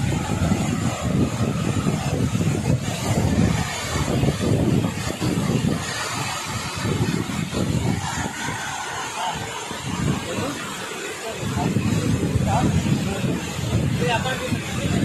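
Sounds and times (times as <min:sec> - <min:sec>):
waterfall roaring: 0:00.0 - 0:15.0.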